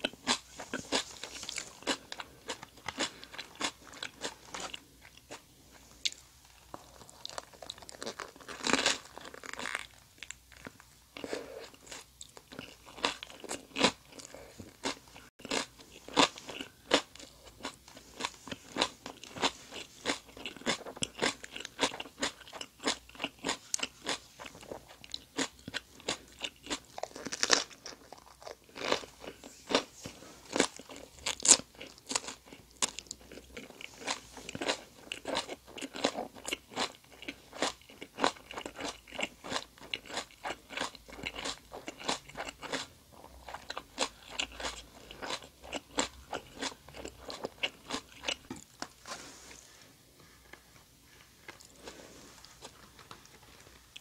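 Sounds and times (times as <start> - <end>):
chewing with wet crunches: 7.1 - 29.9, 30.5 - 48.8.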